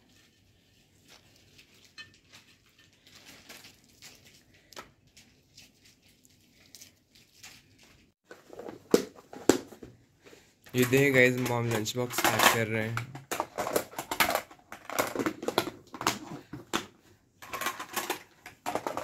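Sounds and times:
bread tearing and rustling: 0.0s - 8.2s.

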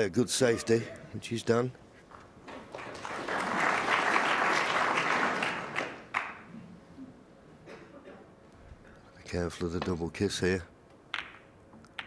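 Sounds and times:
audience applauding: 2.7s - 6.4s.

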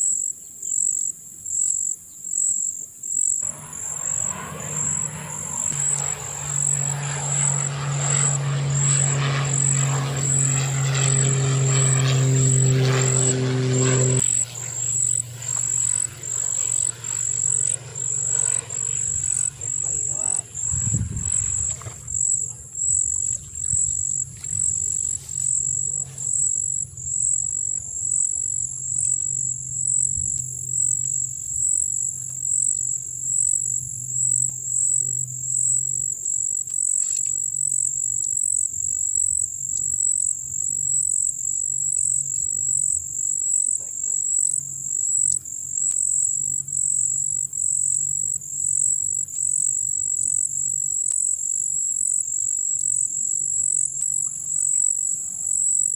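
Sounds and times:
insects trilling: 0.0s - 55.9s
faint low hum: 3.4s - 38.3s.

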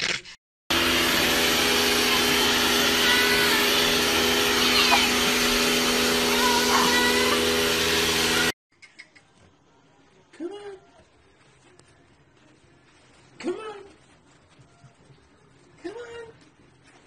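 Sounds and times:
pressure washer motor humming: 0.7s - 8.6s.

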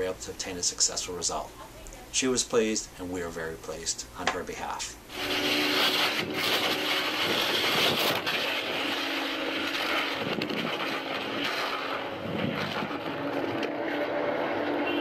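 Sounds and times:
low engine hum: 6.2s - 15.0s
traffic noise: 11.5s - 15.0s.

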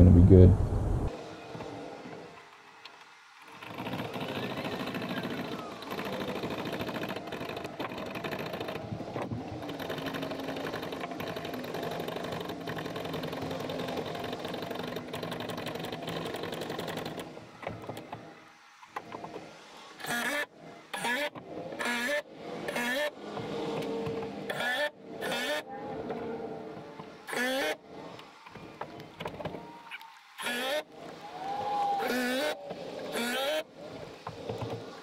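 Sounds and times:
power tool rattling: 3.5s - 18.2s.

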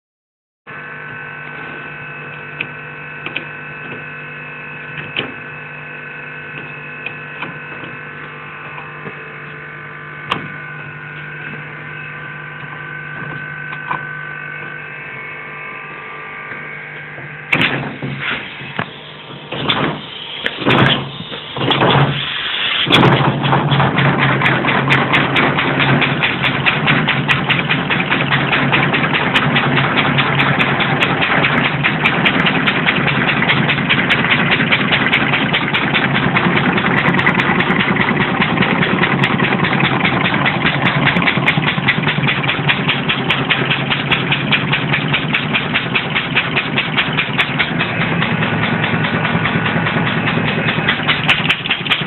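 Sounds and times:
steady hum: 0.7s - 52.0s
pneumatic engine air puffs: 17.5s - 23.8s.

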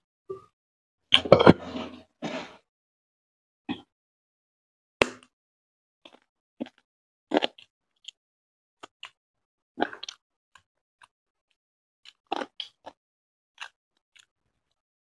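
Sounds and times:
man chewing food: 6.1s - 8.2s, 9.8s - 11.1s, 13.6s - 14.3s.

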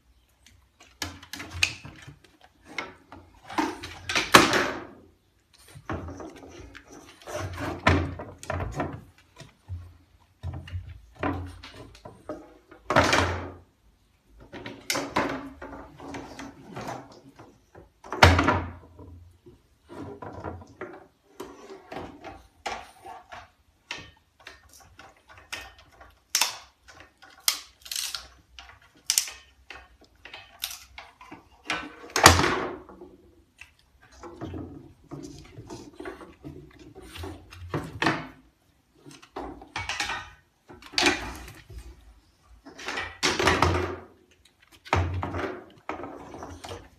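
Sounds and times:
stick scraping wooden floorboards: 5.6s - 9.9s.

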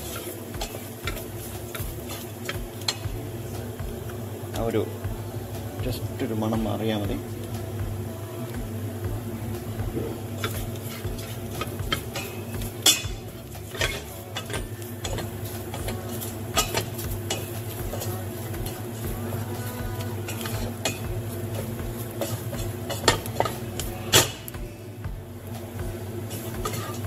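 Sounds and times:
spatula scraping a metal pot: 0.0s - 3.0s, 10.3s - 19.0s, 20.0s - 24.4s, 26.3s - 27.0s
low hum: 0.0s - 27.0s.

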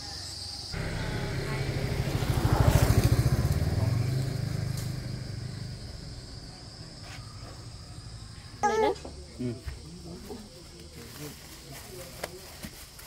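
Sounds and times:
small motorbike engine passing by: 0.7s - 7.8s.

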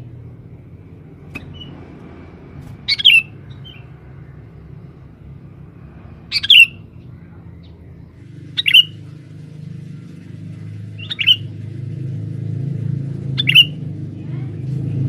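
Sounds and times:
low background rumble: 0.0s - 15.0s
bulbul calling: 1.2s - 1.9s, 2.8s - 4.5s, 6.3s - 7.8s, 8.5s - 9.1s, 10.9s - 11.6s, 13.3s - 13.8s.

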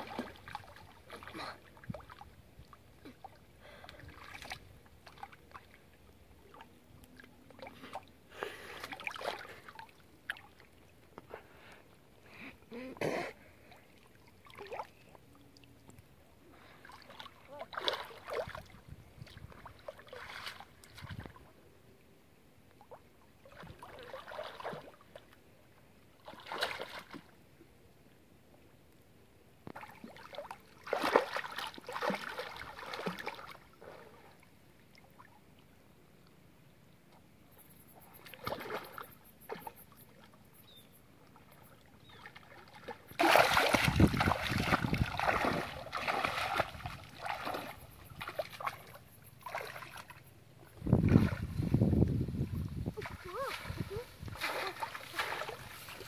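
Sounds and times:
water splashing from swimming: 0.0s - 10.8s, 16.6s - 21.5s, 22.9s - 25.3s, 26.2s - 27.3s, 29.7s - 34.4s, 38.2s - 39.7s, 42.1s - 50.2s, 52.9s - 56.0s.

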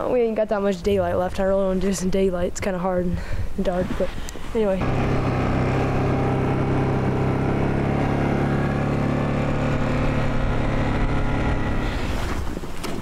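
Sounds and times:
atv engine running: 4.8s - 12.2s.

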